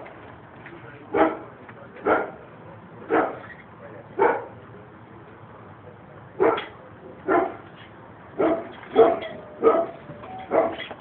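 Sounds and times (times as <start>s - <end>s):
dog barking: 1.2s - 2.4s, 3.1s - 3.5s, 4.2s - 4.6s, 6.4s - 6.7s, 7.3s - 7.6s, 8.4s - 10.9s.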